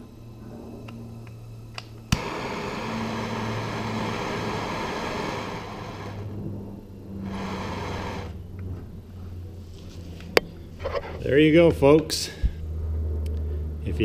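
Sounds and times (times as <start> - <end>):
torch lighting snap: 0.8 - 2.5
igniter clicks: 0.8 - 4.6
torch flame hissing: 1.5 - 8.5.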